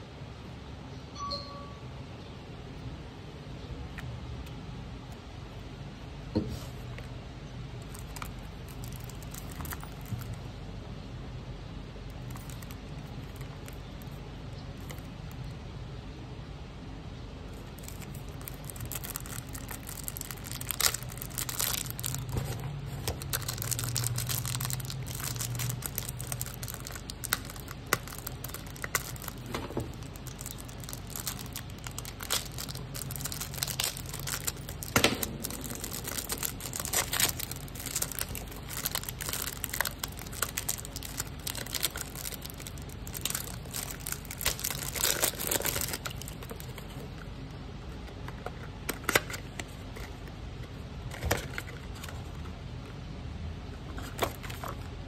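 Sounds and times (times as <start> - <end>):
cellophane wrapper crinkling: 7.8 - 10.5, 12.1 - 15.5, 17.5 - 47.2.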